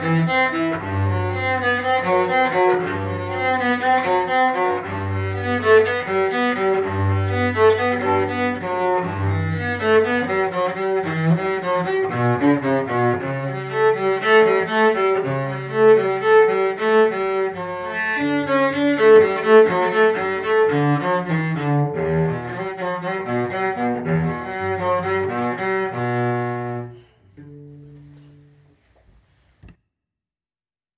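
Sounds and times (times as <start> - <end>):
bowed cello notes: 0.0 - 28.8.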